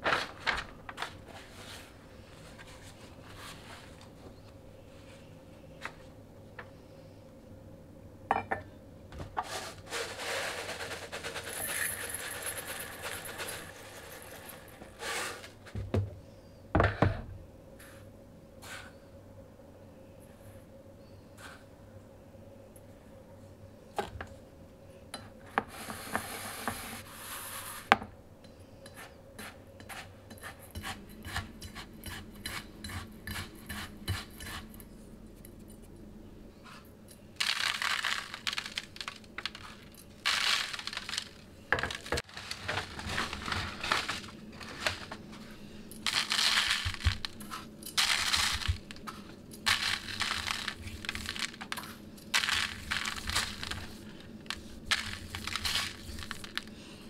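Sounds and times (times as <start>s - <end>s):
grains pattering onto meat: 9.9s - 15.0s, 37.4s - 45.2s, 46.0s - 56.9s
sugar pouring into a bowl: 10.2s - 15.0s, 37.4s - 41.4s.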